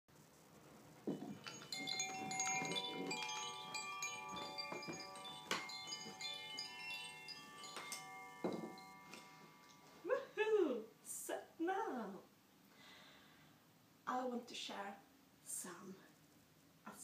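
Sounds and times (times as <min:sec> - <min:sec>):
metal chimes ringing: 0:01.1 - 0:10.1.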